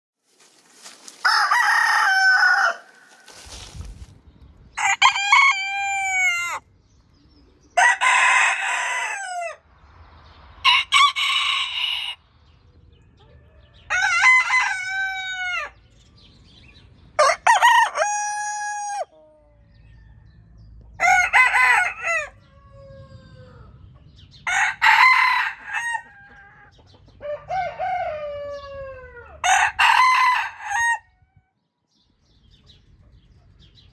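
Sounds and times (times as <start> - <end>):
roosters crowing: 0.8 - 3.9, 4.7 - 6.7, 7.6 - 9.7, 10.6 - 16.3, 17.1 - 31.2.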